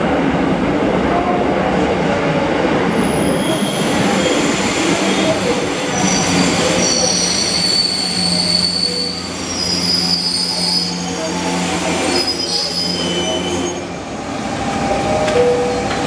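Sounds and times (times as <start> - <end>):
train motor hum and rumble: 0.4 - 16.0
train wheels and brakes squealing: 2.9 - 14.1.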